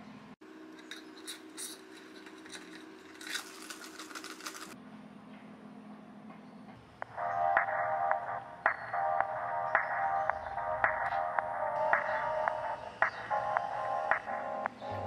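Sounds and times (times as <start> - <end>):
faint steady hum: 0.0 - 15.0
scratchy plastic scraping: 1.6 - 4.8.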